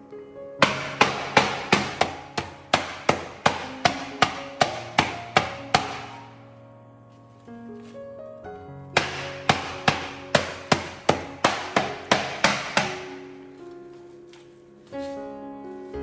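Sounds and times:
soft background music: 0.0 - 16.0
pounder striking cutting board: 0.6 - 6.2, 9.0 - 13.2.

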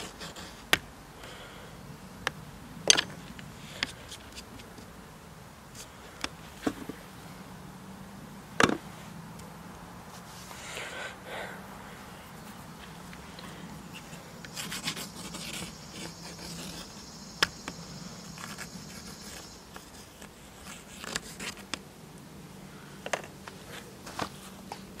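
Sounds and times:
pencil scratching on panel: 0.0 - 0.6, 13.9 - 17.1
faint low hum: 0.0 - 25.0.

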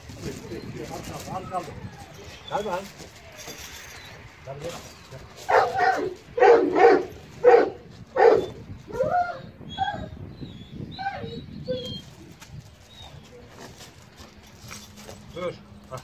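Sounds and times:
large dog barking: 5.4 - 9.4
dog whining and yelping: 5.5 - 13.2.

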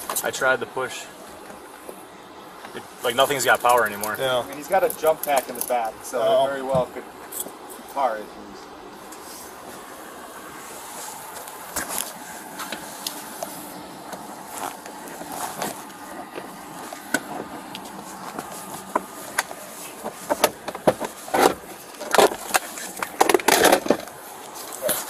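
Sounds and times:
knocks and scrapes: 10.6 - 25.0
objects handled in car clicking: 14.1 - 25.0.

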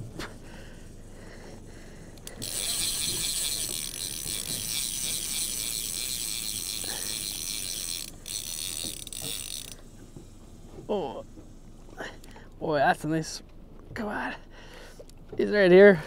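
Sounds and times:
fishing reel ratchet clicking: 2.0 - 10.4.

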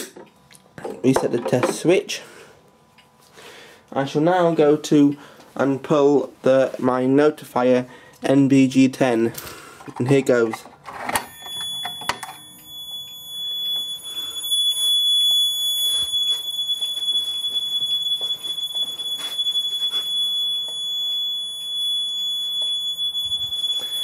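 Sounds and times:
alarm horn high-pitched tone: 11.2 - 24.0.

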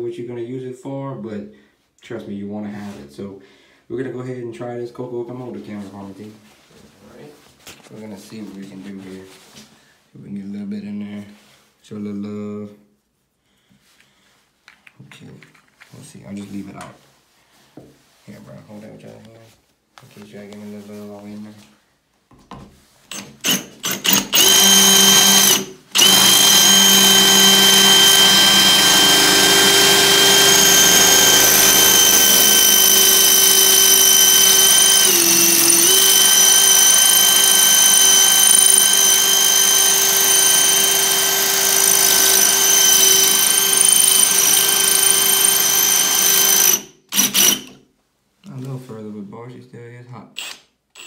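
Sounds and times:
cordless drill grinding into tile: 23.1 - 47.8, 50.4 - 51.0.

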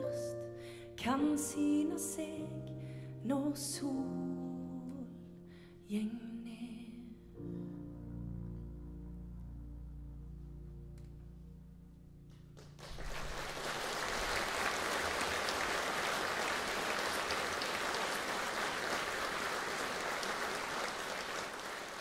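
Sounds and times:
audience applauding: 12.6 - 22.0.

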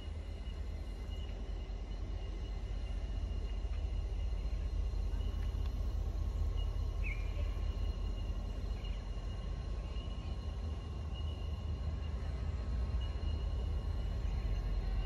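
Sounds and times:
insect trills: 0.0 - 15.0
bird chirp: 6.5 - 8.0.

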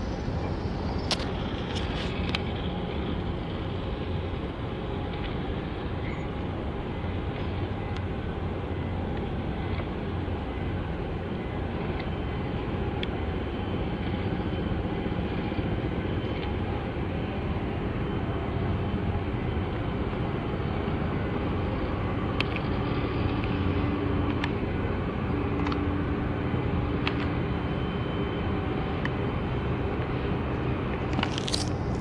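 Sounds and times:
outdoor machinery rumble: 0.0 - 32.0.

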